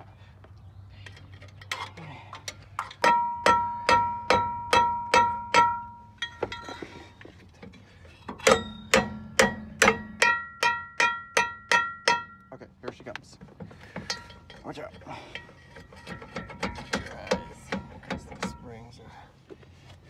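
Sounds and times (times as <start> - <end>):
hammer ringing on metal drum: 3.0 - 6.4, 8.4 - 12.6.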